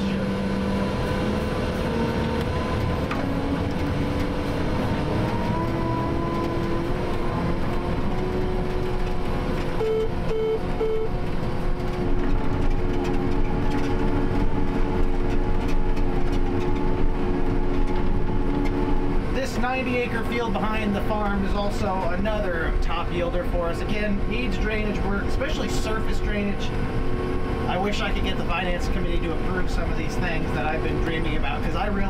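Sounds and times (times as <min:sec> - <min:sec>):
crop sprayer engine drone: 0:00.0 - 0:32.0
short beeps: 0:09.8 - 0:11.1.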